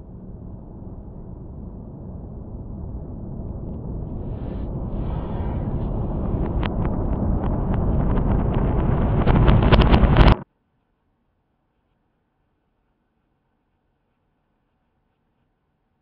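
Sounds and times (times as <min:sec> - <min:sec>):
building implosion rumble: 0:00.0 - 0:10.4.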